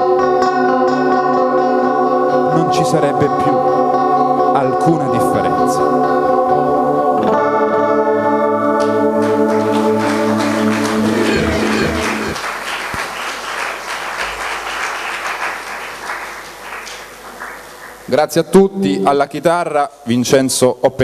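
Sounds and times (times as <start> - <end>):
audience applauding: 8.8 - 18.2.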